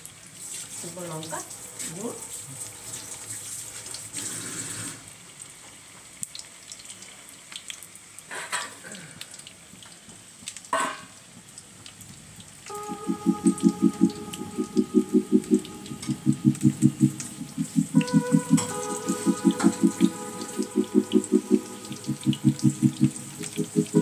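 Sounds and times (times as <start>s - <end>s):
food deep-frying in oil: 0.0s - 12.7s
rhythmic pulsing tone: 12.7s - 24.0s.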